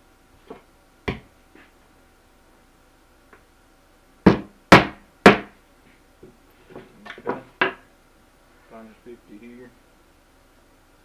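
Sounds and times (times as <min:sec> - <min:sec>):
hammer striking a nail: 0:04.2 - 0:05.6.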